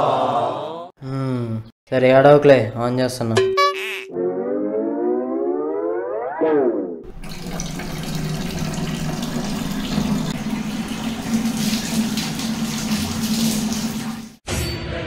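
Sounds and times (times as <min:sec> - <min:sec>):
tap running into a bucket: 0:07.1 - 0:14.4.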